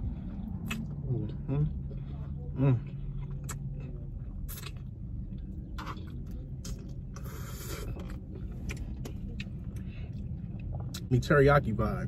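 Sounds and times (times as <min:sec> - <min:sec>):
low steady rumble: 0:00.0 - 0:12.0
noodles slurped and chewed: 0:01.9 - 0:09.5.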